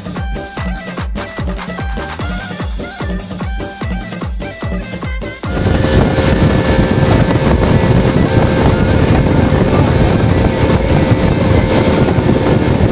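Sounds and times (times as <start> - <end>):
motorboat engine running: 0.0 - 12.9
music: 0.0 - 12.9
wind and water rushing: 5.5 - 12.9.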